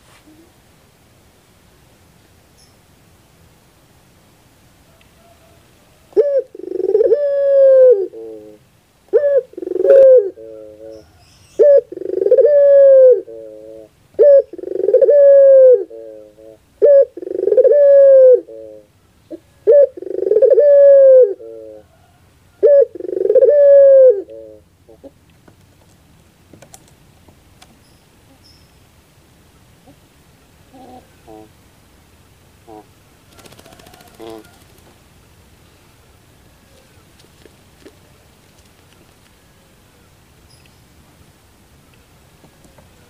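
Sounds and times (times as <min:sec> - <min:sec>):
dove cooing: 0:05.2 - 0:25.2, 0:30.7 - 0:31.5, 0:32.7 - 0:34.9.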